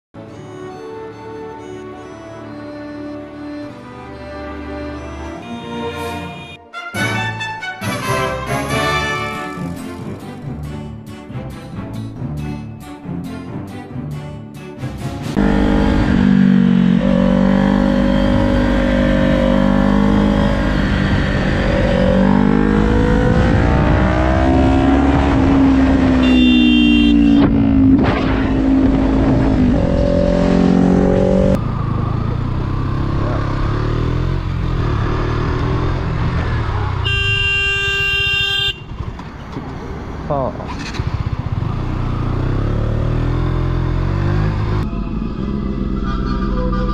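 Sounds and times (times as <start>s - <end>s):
horn: 2.0s - 10.0s, 26.1s - 27.6s
motorcycle engine revving: 15.3s - 38.1s, 38.8s - 46.9s
motorcycle running rough: 15.4s - 37.3s, 38.8s - 46.8s.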